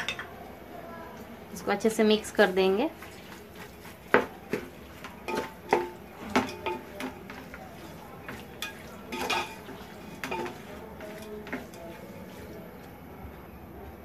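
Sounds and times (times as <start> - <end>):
wooden spoon knocking metal pot: 4.1 - 12.5
metal pot ringing: 5.2 - 7.4, 8.3 - 11.9.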